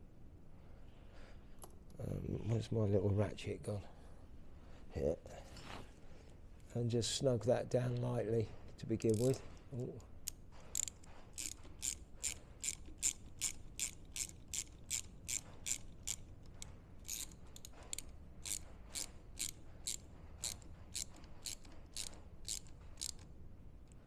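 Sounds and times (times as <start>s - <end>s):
hand ratchet clicking: 9.0s - 23.3s.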